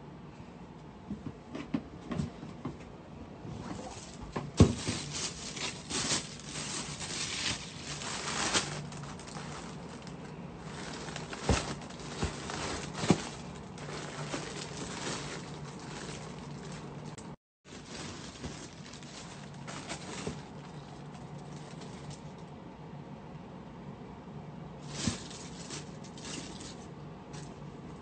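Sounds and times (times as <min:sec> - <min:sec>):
low steady hum: 0:00.0 - 0:28.0
tissue paper and plastic rustling: 0:03.6 - 0:22.4, 0:24.8 - 0:27.6.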